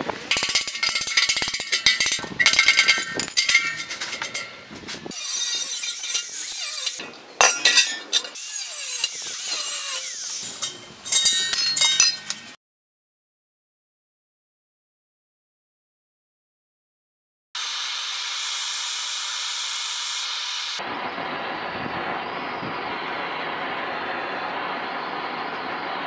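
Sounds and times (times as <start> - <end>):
metallic clinks and knocks: 0.3 - 5.0, 10.4 - 12.6.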